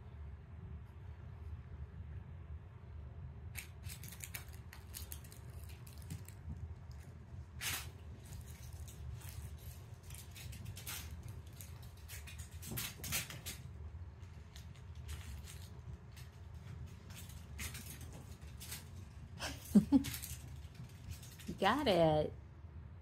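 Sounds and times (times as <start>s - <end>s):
low room hum: 0.0s - 23.0s
kittens' paws skittering on wood floor: 3.6s - 21.7s.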